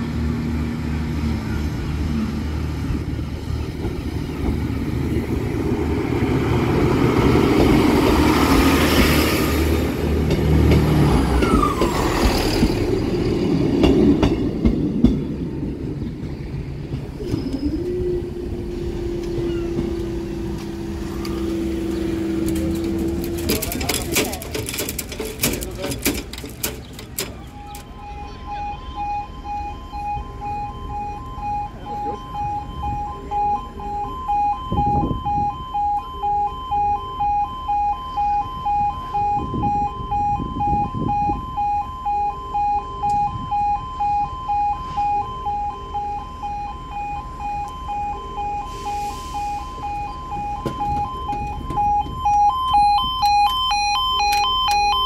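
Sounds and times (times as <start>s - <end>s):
level crossing warning alarm: 17.2s - 55.0s
higher-pitched pulsing alarm tone: 27.5s - 55.0s.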